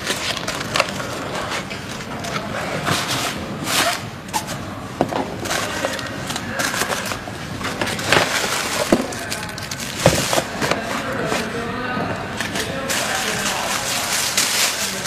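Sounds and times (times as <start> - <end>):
plastic bag crinkling: 5.4 - 11.8, 12.4 - 15.0.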